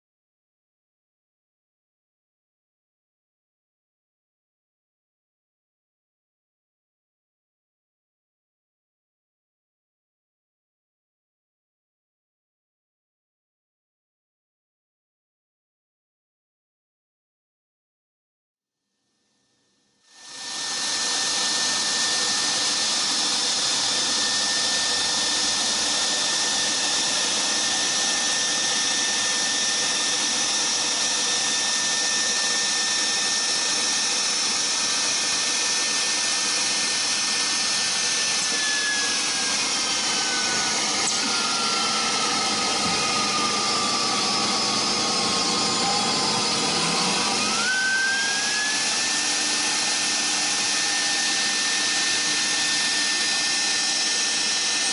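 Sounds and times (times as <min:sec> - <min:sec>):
router spindle whine: 0:20.1 - 0:54.9.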